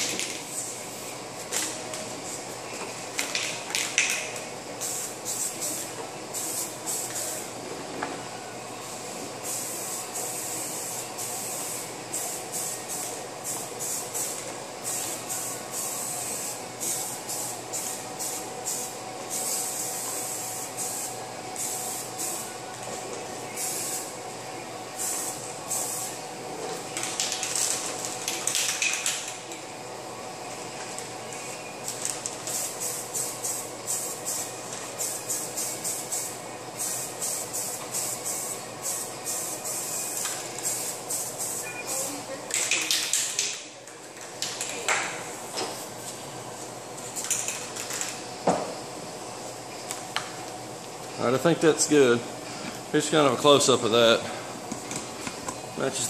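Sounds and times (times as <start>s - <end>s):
spray paint can hissing: 4.8s - 7.4s, 9.4s - 22.4s, 31.8s - 43.5s.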